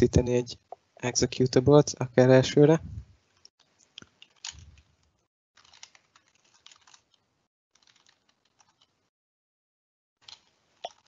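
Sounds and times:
faint computer keyboard typing: 5.6 - 7.2, 7.8 - 9.0.

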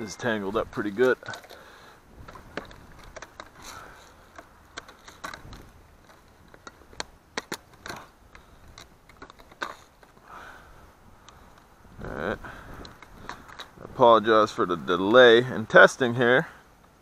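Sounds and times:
plastic toy clicking and scraping: 1.0 - 10.2.

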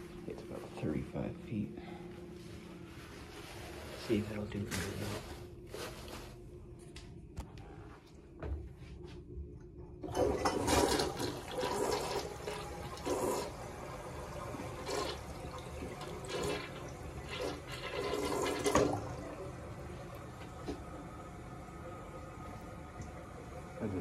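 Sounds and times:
toilet flushing: 10.0 - 24.0.

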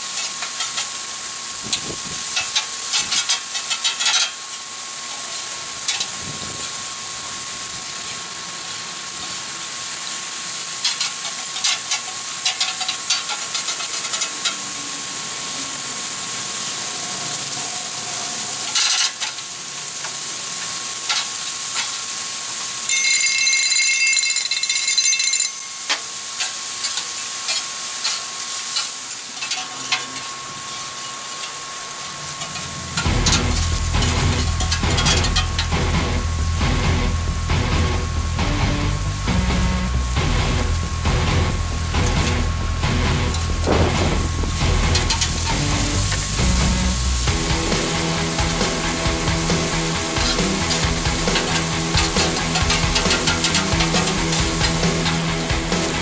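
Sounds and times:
meat and onions sizzling on griddle: 0.0 - 56.0
metal spatulas scraping steel: 2.3 - 4.4, 10.8 - 14.7, 32.4 - 35.7, 44.8 - 46.3, 47.7 - 56.0
high steady ringing tone: 22.8 - 26.2.

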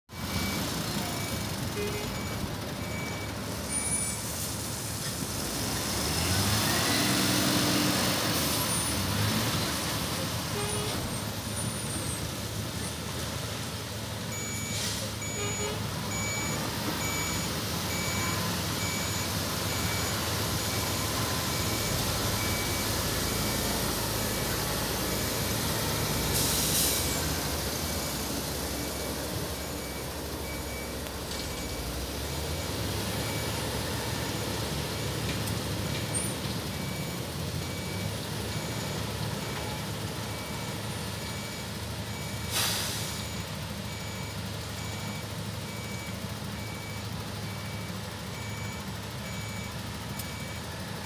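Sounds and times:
reversing alarm beeping: 0.1 - 4.3, 14.3 - 35.2, 36.1 - 50.8
heavy machinery diesel engines: 0.1 - 51.0
engine revving: 5.4 - 9.9.

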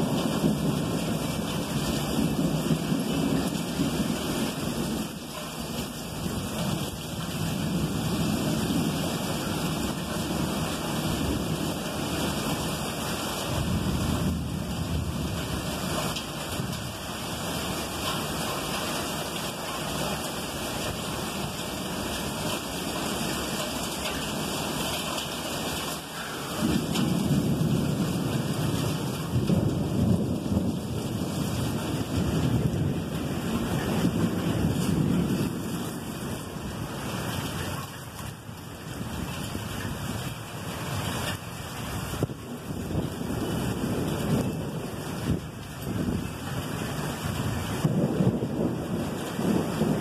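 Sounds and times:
rolling thunder: 0.0 - 12.9, 13.5 - 17.0, 26.2 - 37.6, 42.0 - 50.0
steady rain: 0.0 - 50.0.

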